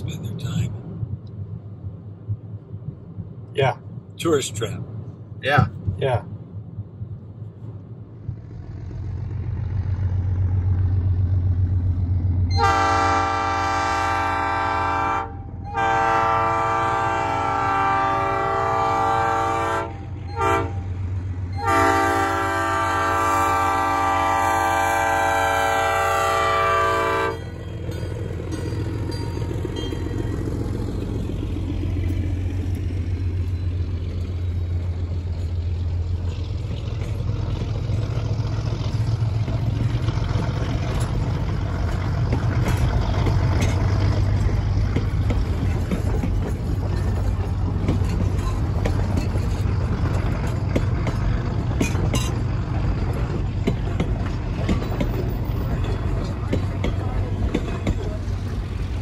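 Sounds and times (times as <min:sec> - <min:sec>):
steady low rumble: 0:00.0 - 0:14.6, 0:15.3 - 0:59.0
steam locomotive whistle blasts: 0:12.5 - 0:20.9, 0:21.6 - 0:27.4.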